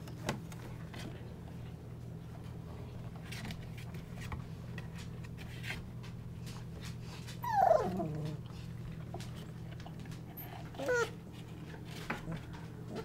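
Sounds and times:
puppies rustling on bedding: 0.4 - 13.0
puppy crying: 7.4 - 8.4, 10.4 - 11.2.

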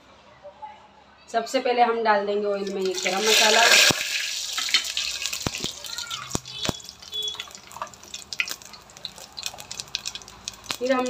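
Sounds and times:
spices crackling in hot oil: 2.6 - 11.0.

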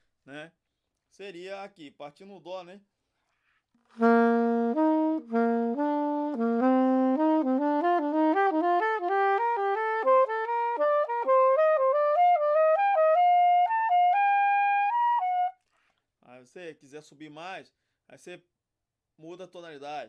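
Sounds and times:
soprano saxophone playing: 4.0 - 15.6.

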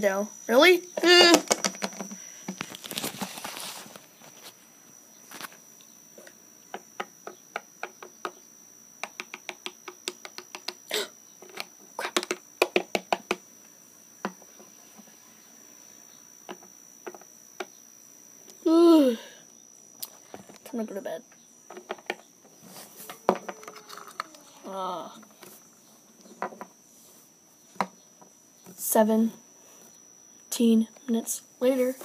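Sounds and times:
plastic toys clicking on wood: 1.0 - 2.6, 9.0 - 10.8, 11.4 - 13.4, 23.3 - 24.4.

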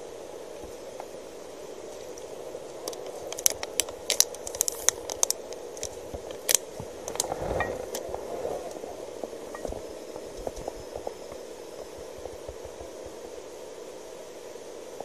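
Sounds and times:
steady hum: 0.0 - 15.0
plastic bottle crinkling: 2.8 - 8.0.

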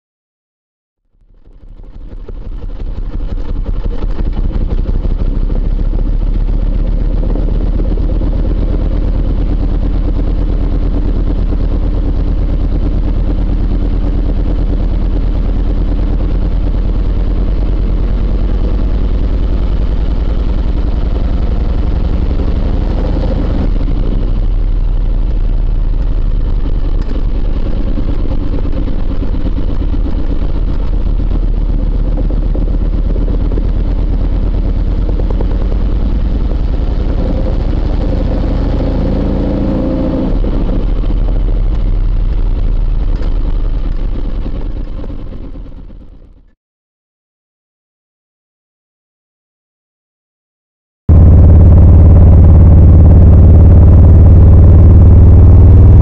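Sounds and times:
motorcycle engine running: 1.0 - 46.5, 51.1 - 56.0.

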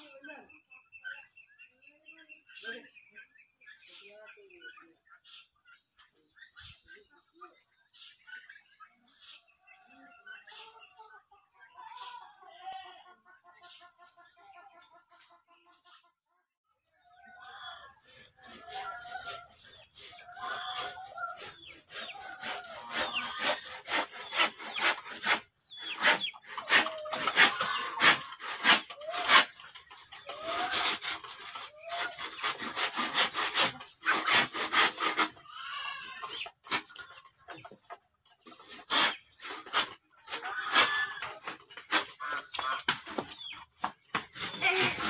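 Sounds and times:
chickens clucking: 0.0 - 45.0
blade cutting bamboo: 18.1 - 35.4, 36.2 - 37.2, 38.4 - 43.2, 43.8 - 45.0.

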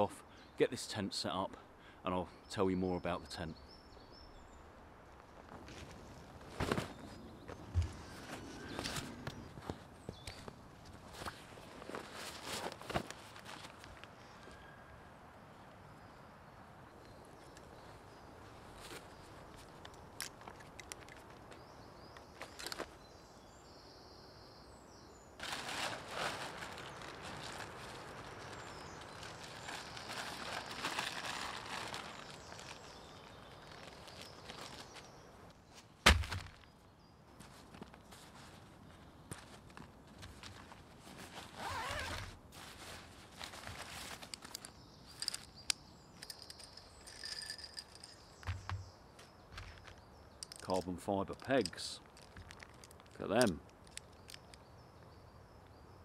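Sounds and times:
nylon fabric rustling and flapping: 25.4 - 35.0, 39.4 - 44.4
zip pulled open: 41.4 - 42.4.

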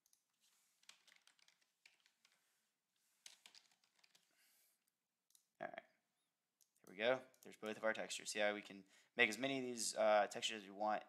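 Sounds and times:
faint keyboard typing: 0.0 - 2.4, 3.2 - 4.4.

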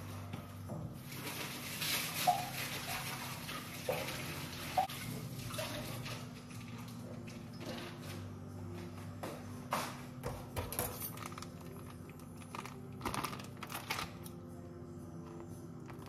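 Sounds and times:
water running from tap: 1.0 - 7.0.

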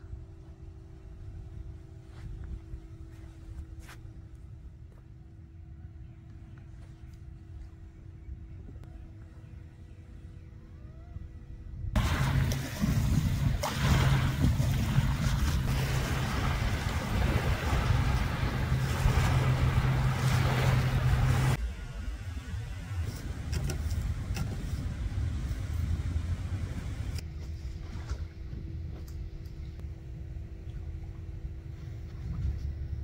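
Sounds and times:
rough outdoor noise: 0.0 - 30.6
steady low hum: 0.0 - 33.0
small waves washing onto beach: 12.0 - 21.6.

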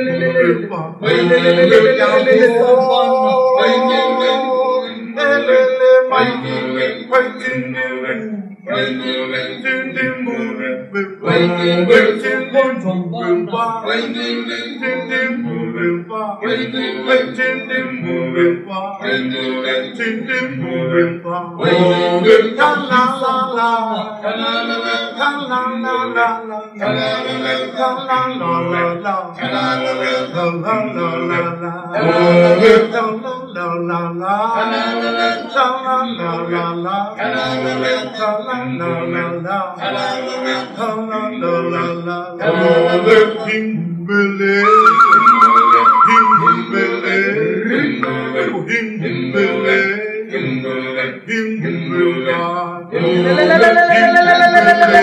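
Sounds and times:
person singing: 0.0 - 23.4, 44.6 - 49.7, 52.9 - 55.0
background music: 44.6 - 46.9.

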